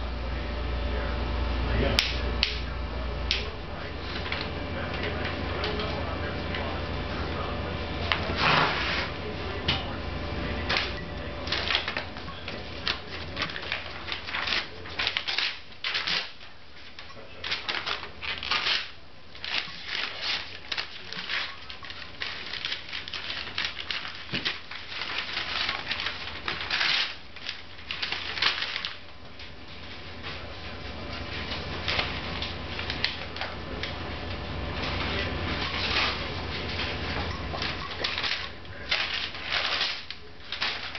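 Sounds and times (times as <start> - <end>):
paper crinkling and ripping: 8.0 - 9.2, 10.6 - 30.4, 34.8 - 40.9.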